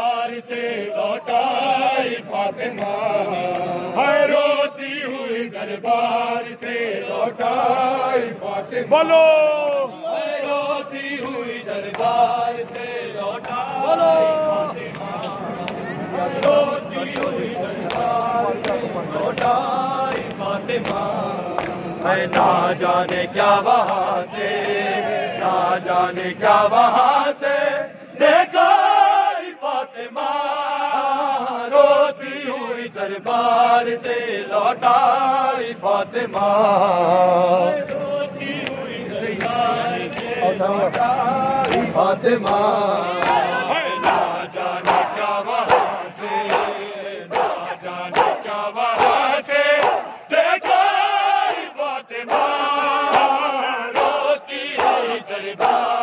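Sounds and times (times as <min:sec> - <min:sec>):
men chanting a lament: 0:00.0 - 0:56.0
hands slapping chests: 0:43.2 - 0:49.2, 0:54.8 - 0:55.8.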